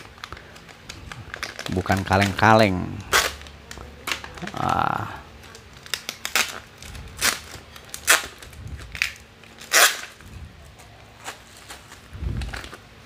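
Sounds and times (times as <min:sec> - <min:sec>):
scissors cutting plastic: 0:00.0 - 0:10.2
plastic bags crinkling: 0:00.0 - 0:13.0.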